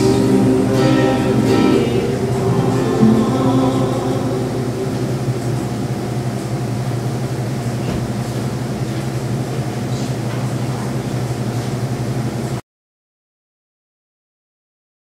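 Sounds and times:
person singing: 0:00.0 - 0:05.8
guitar notes: 0:00.0 - 0:06.7
steady low hum: 0:00.0 - 0:12.6.

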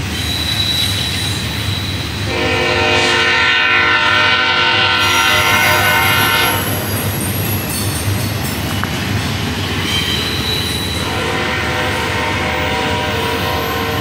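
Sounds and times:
faint wheel squeal: 0:00.0 - 0:02.3, 0:06.6 - 0:11.3
train wheels rumbling on rail: 0:00.0 - 0:14.0
locomotive horn: 0:02.2 - 0:06.9, 0:11.0 - 0:14.0.

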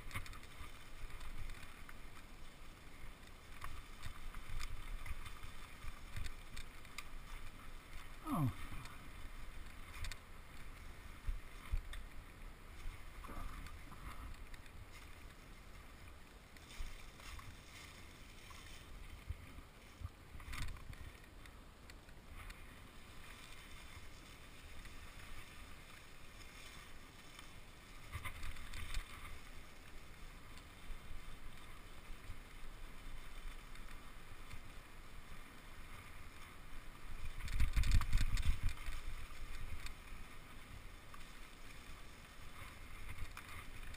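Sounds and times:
wind rumble on microphone: 0:37.2 - 0:39.9.

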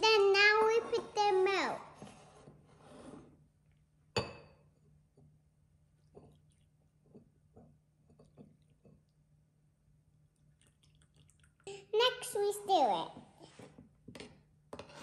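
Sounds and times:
ceramic clink: 0:04.1 - 0:04.8
milk dripping and splashing: 0:05.2 - 0:12.3.

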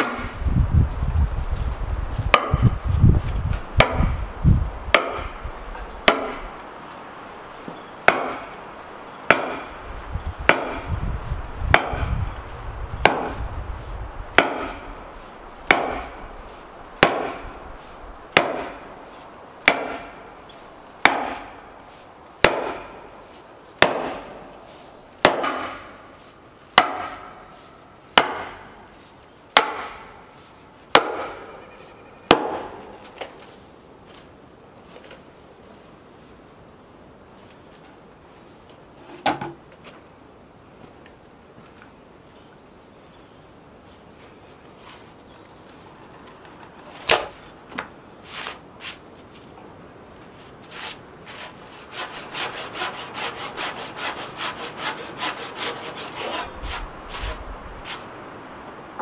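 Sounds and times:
sledgehammer knocking on wood: 0:02.3 - 0:02.7, 0:03.8 - 0:04.2, 0:06.0 - 0:06.4, 0:09.3 - 0:09.7, 0:10.5 - 0:10.9, 0:11.7 - 0:12.2, 0:13.0 - 0:13.4, 0:14.4 - 0:14.8, 0:15.7 - 0:16.2, 0:17.0 - 0:17.4, 0:18.3 - 0:18.8, 0:19.6 - 0:20.1, 0:21.0 - 0:21.5, 0:22.4 - 0:22.9, 0:23.8 - 0:24.2, 0:25.2 - 0:25.9, 0:26.8 - 0:27.3, 0:28.2 - 0:28.6.

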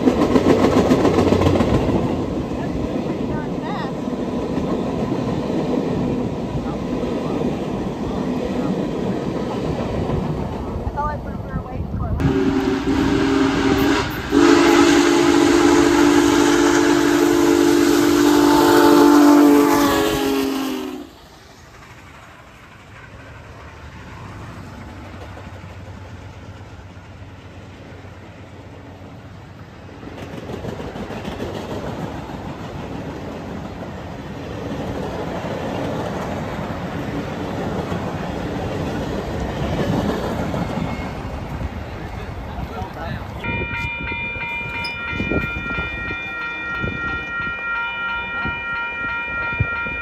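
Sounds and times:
steam whistle blowing chord: 0:12.2 - 0:21.1.

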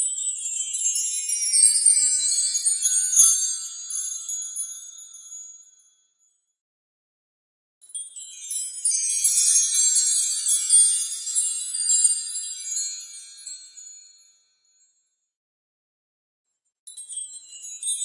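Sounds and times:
wind chimes tinkling: 0:00.0 - 0:06.0, 0:07.9 - 0:14.8, 0:16.9 - 0:18.0.

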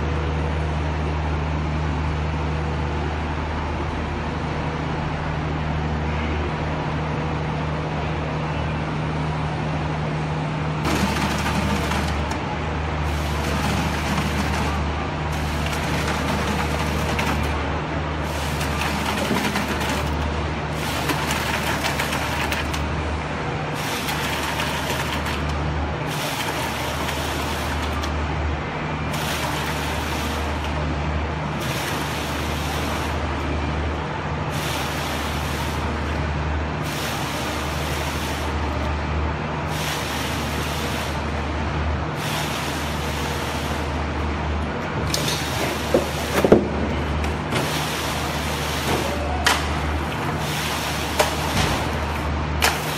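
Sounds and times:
low engine drone: 0:00.0 - 0:52.6
concrete pump surge: 0:10.8 - 0:38.8, 0:39.6 - 0:44.2, 0:44.8 - 0:52.9.

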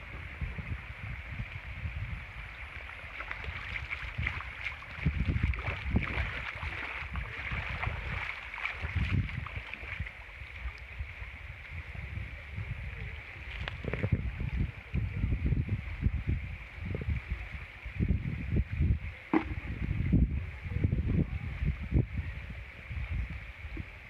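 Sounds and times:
wind rumble on microphone: 0:00.0 - 0:24.0
water pouring and splashing: 0:01.4 - 0:11.8.

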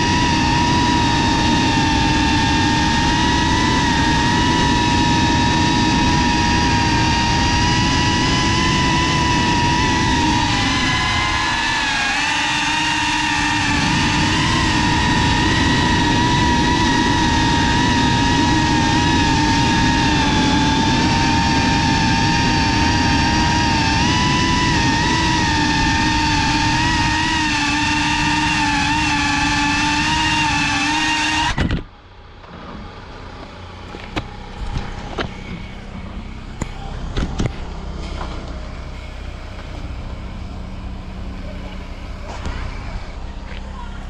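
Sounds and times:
rushing wind noise: 0:00.0 - 0:31.9
drone motors whining: 0:00.0 - 0:44.0.

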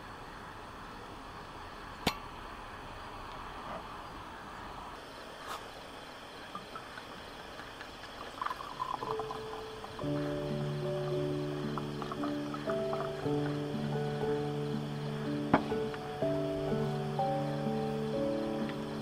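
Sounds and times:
wine glugging into glass: 0:08.2 - 0:10.2
music: 0:09.0 - 0:19.0.

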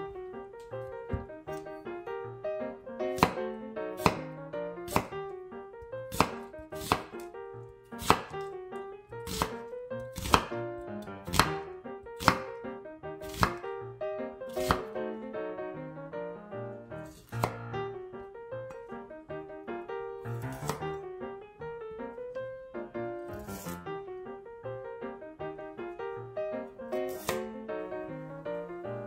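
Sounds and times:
jazz music: 0:00.0 - 0:29.0
knife slicing onion on board: 0:03.1 - 0:04.3, 0:04.9 - 0:05.3, 0:06.1 - 0:07.3, 0:08.0 - 0:08.5, 0:09.2 - 0:12.6, 0:13.2 - 0:13.6, 0:14.5 - 0:14.9, 0:17.0 - 0:17.6, 0:20.3 - 0:21.0, 0:23.3 - 0:23.8, 0:27.0 - 0:27.5.

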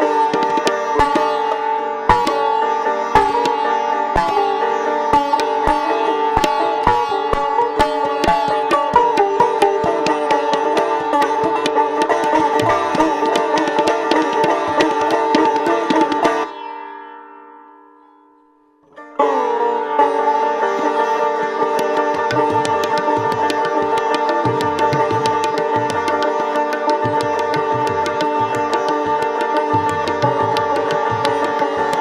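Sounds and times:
tabla strokes: 0:00.0 - 0:16.7, 0:21.5 - 0:32.0
sitar playing: 0:00.0 - 0:32.0.

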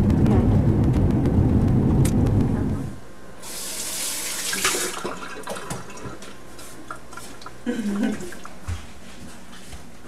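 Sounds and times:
car cabin rumble: 0:00.0 - 0:03.0.

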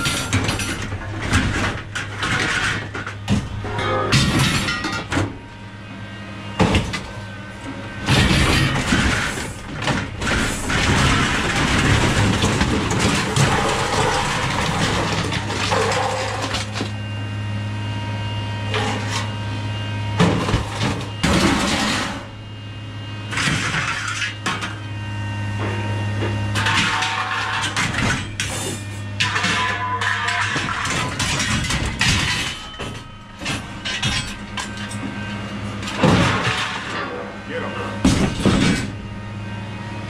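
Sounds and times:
scrap metal clattering and banging: 0:00.0 - 0:05.3, 0:08.0 - 0:16.9, 0:26.5 - 0:37.2.

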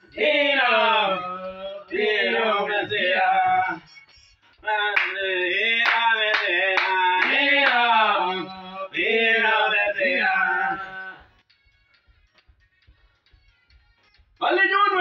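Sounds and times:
man singing gospel song: 0:00.0 - 0:03.8, 0:04.6 - 0:11.3.

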